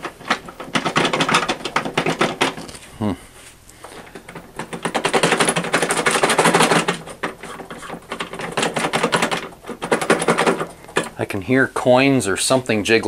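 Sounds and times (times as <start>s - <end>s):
debris rattling in filter housing: 0.0s - 2.8s, 3.8s - 11.4s.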